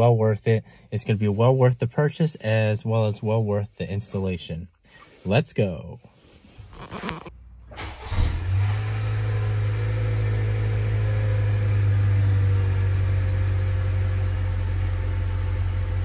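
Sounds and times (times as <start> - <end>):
car engine starting and idling: 6.9 - 16.0.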